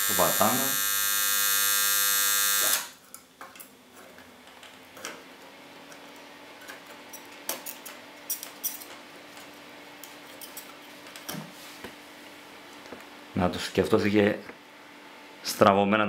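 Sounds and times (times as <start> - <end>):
transformer buzzing loudly: 0.0 - 3.0.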